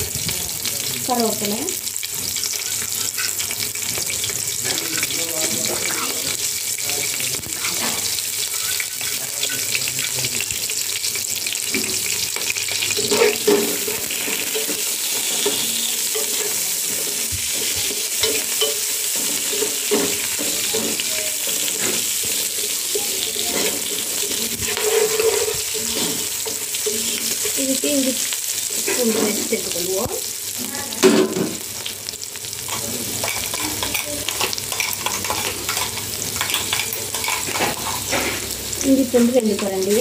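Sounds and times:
onions sizzling in hot oil: 0:00.0 - 0:40.0
wooden spoon scraping a pot: 0:11.9 - 0:27.9.

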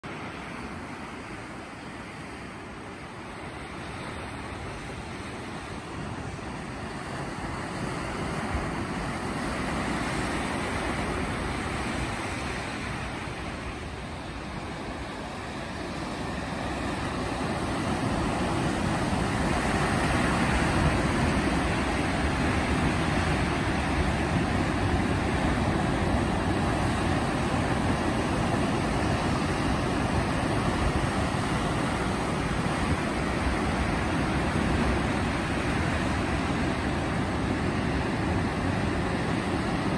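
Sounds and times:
surf breaking over rocks: 0:07.6 - 0:39.9.

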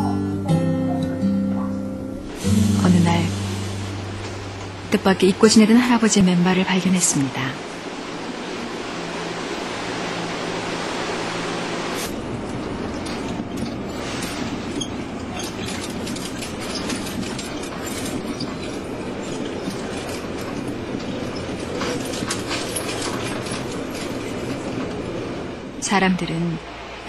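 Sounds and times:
subway train rumble: 0:00.0 - 0:27.0
wheels clacking on rails: 0:01.5 - 0:27.0
steady hum: 0:02.0 - 0:12.8.

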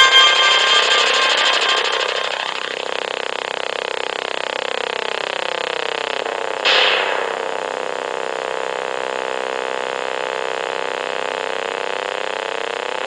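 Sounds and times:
droning motor hum: 0:00.0 - 0:06.6.

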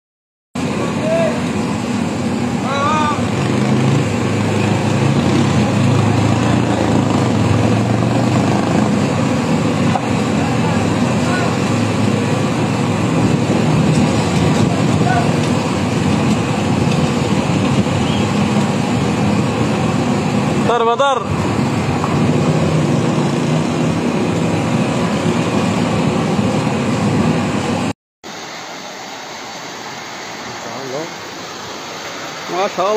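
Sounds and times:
vehicle engine running: 0:00.6 - 0:27.9
street noise: 0:00.6 - 0:32.9
wind on microphone: 0:11.9 - 0:20.7.

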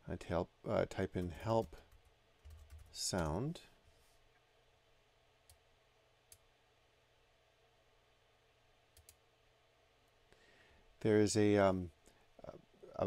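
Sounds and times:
soft clicks: 0:08.9 - 0:09.2.

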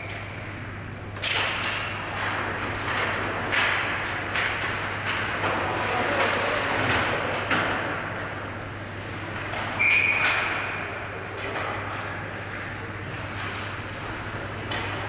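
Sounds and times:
hockey sticks clacking puck: 0:01.2 - 0:07.9
referee's whistle: 0:09.8 - 0:10.3.

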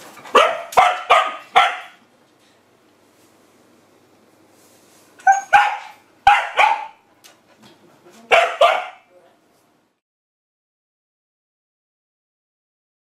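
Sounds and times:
dog barking: 0:00.3 - 0:02.0, 0:05.2 - 0:07.0, 0:08.3 - 0:09.1.

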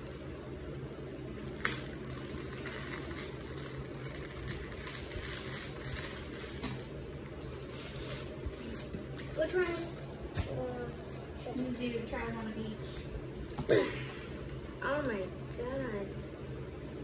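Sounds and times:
plastic bag crinkling: 0:00.0 - 0:11.7
steady low hum: 0:00.0 - 0:17.0.

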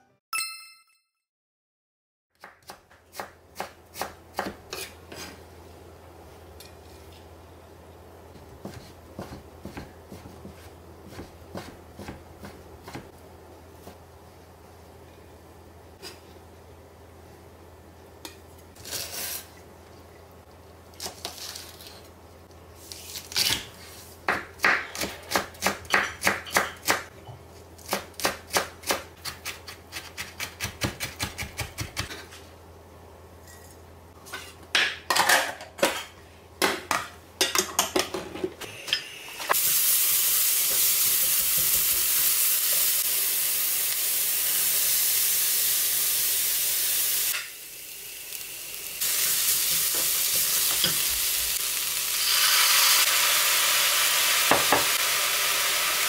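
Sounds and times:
knife chopping on cutting board: 0:02.4 - 0:05.4, 0:08.4 - 0:13.1
food sizzling in a pan: 0:39.3 - 0:56.0.

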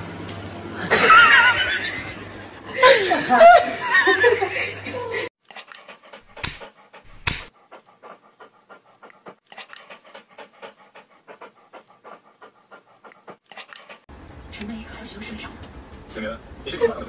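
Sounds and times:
dog panting: 0:05.5 - 0:14.1.

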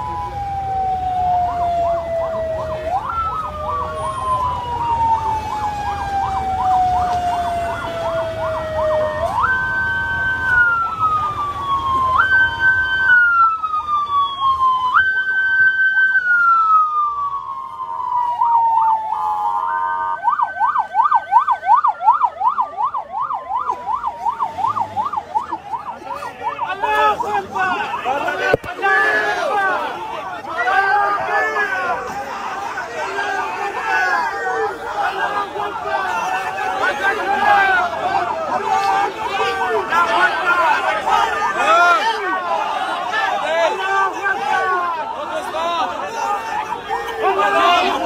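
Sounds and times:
siren yelping warble: 0:00.0 - 0:28.6
siren wailing up and down: 0:00.0 - 0:48.0.

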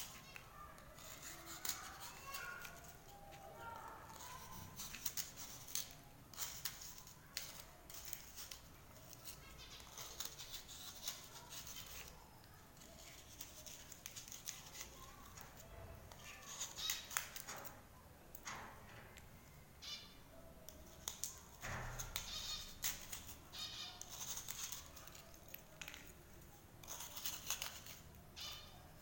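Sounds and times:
knife scraping cuttlefish bone: 0:01.0 - 0:03.1, 0:21.0 - 0:26.1, 0:26.8 - 0:28.6.

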